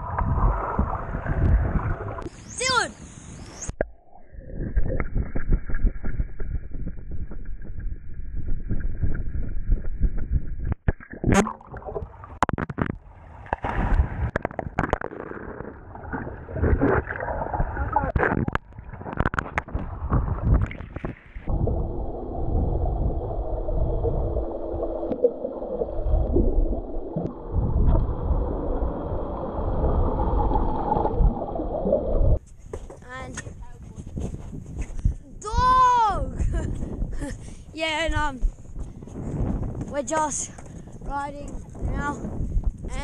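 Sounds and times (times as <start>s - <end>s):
muffled underwater rush: 0.0s - 2.5s, 3.4s - 32.4s
water splashing against camera: 3.6s - 34.2s.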